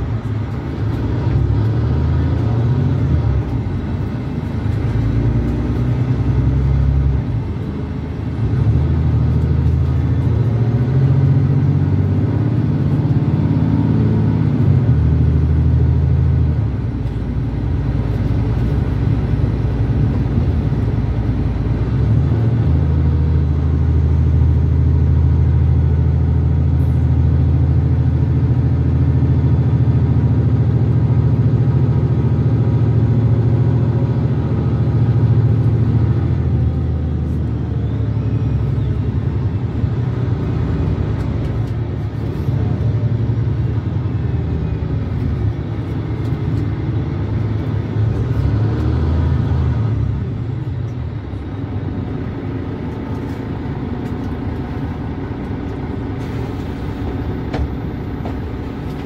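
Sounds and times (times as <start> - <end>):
bus engine accelerating: 0.0 - 59.0.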